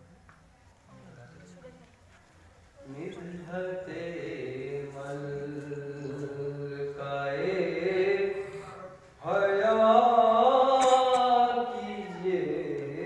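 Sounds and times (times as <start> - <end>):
man chanting into a microphone: 2.8 - 13.0.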